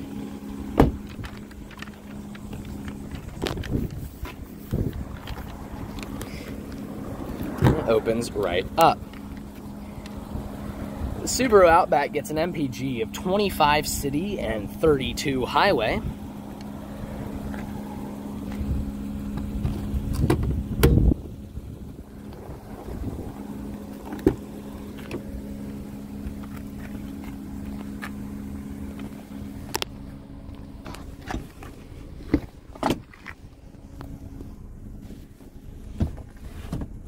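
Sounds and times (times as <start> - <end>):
car door and seat clicks: 0.7 - 7.9, 19.3 - 21.2, 24.0 - 25.4, 30.8 - 33.4, 35.9 - 37.0
heavy thump: 0.8 - 1.2, 7.6 - 7.9.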